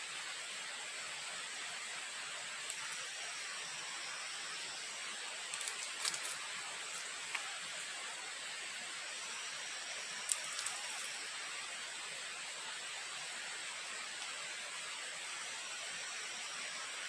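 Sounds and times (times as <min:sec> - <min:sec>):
steady fire hiss: 0:00.0 - 0:17.0
wood fire crackling and popping: 0:05.5 - 0:07.5.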